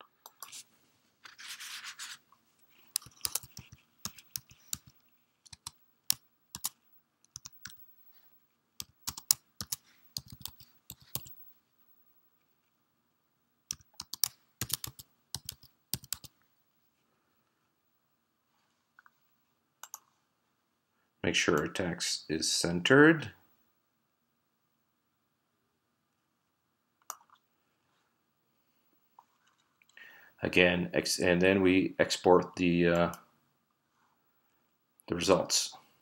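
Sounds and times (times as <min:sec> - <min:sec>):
scratchy rustle: 0:00.4 - 0:05.4.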